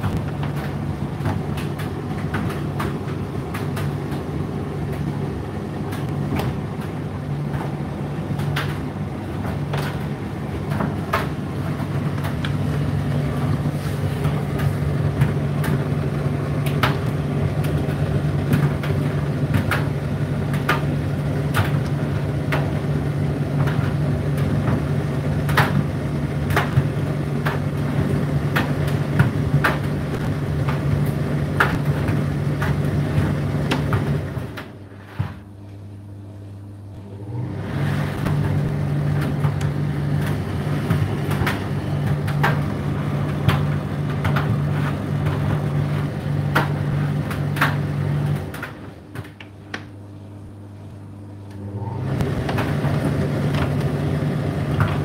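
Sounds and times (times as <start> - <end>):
clicks and knocks in dryer: 0.0 - 35.4, 38.2 - 50.0, 52.2 - 55.0
tumble dryer motor hum: 0.0 - 55.0.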